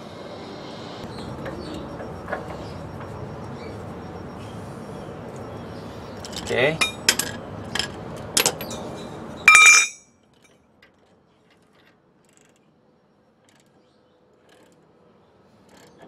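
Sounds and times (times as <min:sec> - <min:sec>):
steel sockets clinking: 0:06.2 - 0:08.8, 0:09.5 - 0:10.0.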